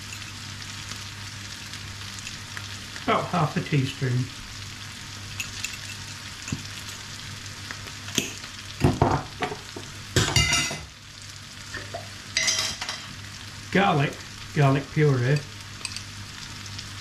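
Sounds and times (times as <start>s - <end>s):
food sizzling in a frying pan: 0.0s - 17.0s
spoon clinking on pan and jars: 5.3s - 6.8s, 10.2s - 10.9s, 11.9s - 13.1s, 15.4s - 16.1s.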